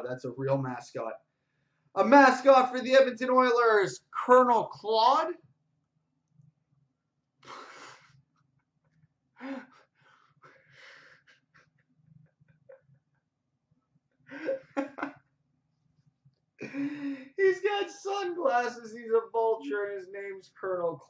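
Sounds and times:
person's stifled breathy laughter: 0:14.3 - 0:15.2.

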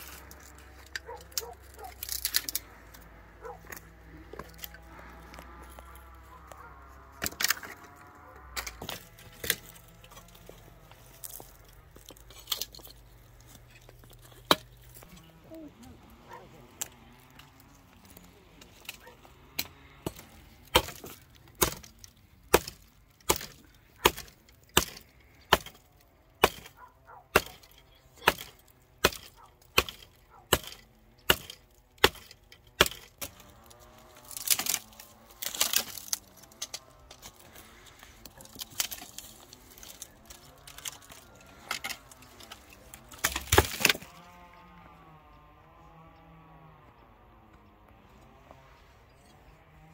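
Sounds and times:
blade chopping wood: 0:14.1 - 0:15.1, 0:18.9 - 0:37.6, 0:38.2 - 0:44.3.

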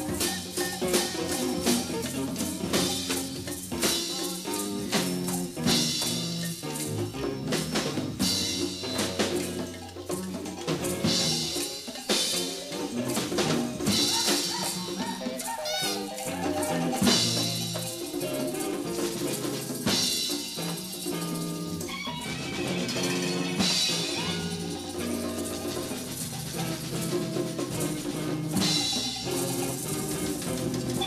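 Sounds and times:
drum kit with cymbals: 0:00.0 - 0:31.0
wavering high note: 0:13.3 - 0:17.7.

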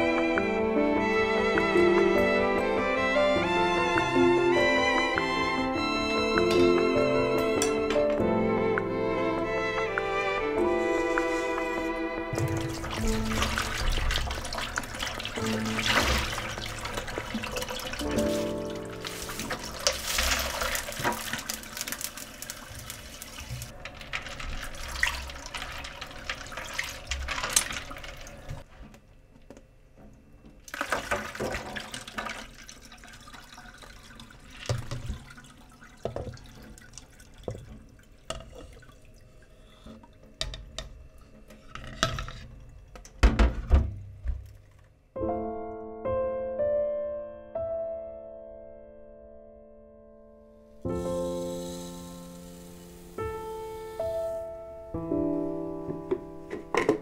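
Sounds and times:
water splashing and dripping: 0:09.9 - 0:28.7, 0:30.7 - 0:40.9
tap water running into bowl: 0:10.8 - 0:28.6, 0:30.7 - 0:43.1, 0:56.1 - 0:57.0.

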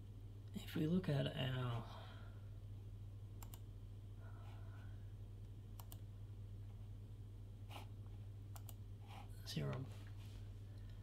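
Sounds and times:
steady low hum: 0:00.0 - 0:11.0
computer mouse clicking: 0:03.4 - 0:03.7, 0:05.8 - 0:06.0, 0:08.5 - 0:08.8.

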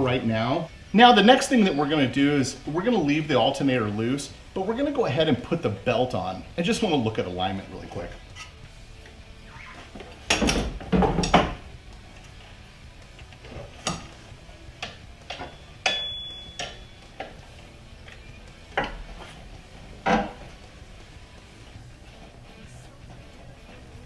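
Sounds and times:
metal tools clinking: 0:15.2 - 0:17.4.

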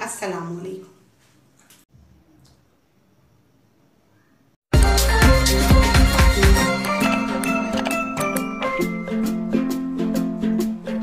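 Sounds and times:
music with strong beat: 0:04.7 - 0:11.0.

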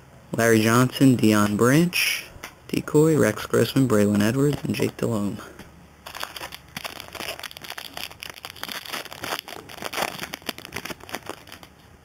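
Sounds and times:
foil wrapper crinkling and tearing: 0:06.0 - 0:11.7.

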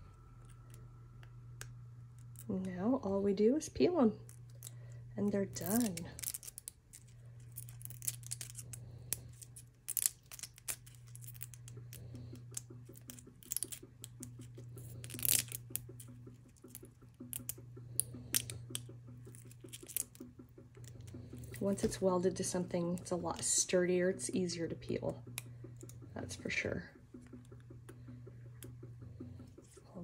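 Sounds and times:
paper peeling off plastic: 0:05.5 - 0:20.3.

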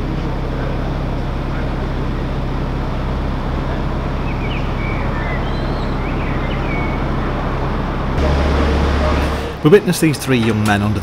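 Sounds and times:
boat engine droning: 0:00.0 - 0:11.0
small bird chirping: 0:04.2 - 0:07.2.

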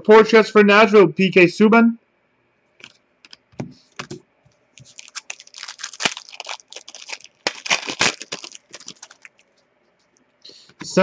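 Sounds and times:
foil wrappers crinkling: 0:04.7 - 0:10.1.

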